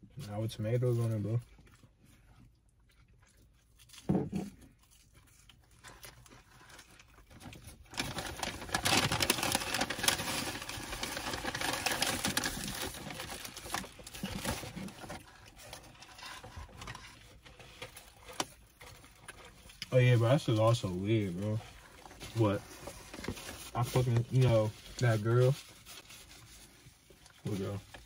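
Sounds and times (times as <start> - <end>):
person chewing: 1.4 - 7.9
paper wrappers crinkling: 4.9 - 28.0.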